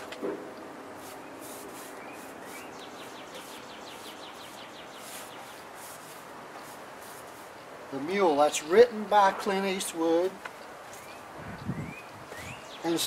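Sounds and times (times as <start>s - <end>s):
paintbrush strokes: 0.9s - 7.6s
bird chirping: 1.2s - 5.8s, 10.9s - 13.0s.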